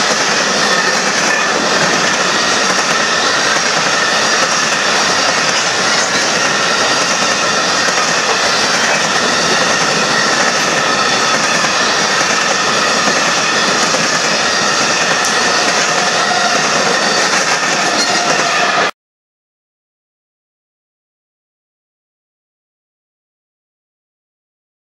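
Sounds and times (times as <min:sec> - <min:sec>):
train wheels rumbling on rail: 0:00.0 - 0:18.9.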